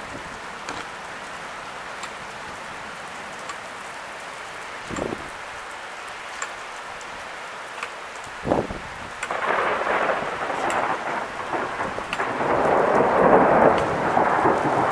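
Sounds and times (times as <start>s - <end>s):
steady rain: 0.0s - 14.9s
water drips ticking: 0.0s - 14.9s
wind buffeting microphone: 4.9s - 5.4s, 8.4s - 14.9s.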